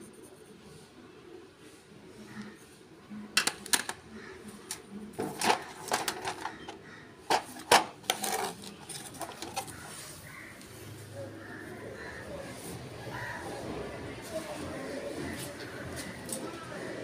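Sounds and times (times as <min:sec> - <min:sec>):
pencils rattling in a box: 0:04.7 - 0:09.9.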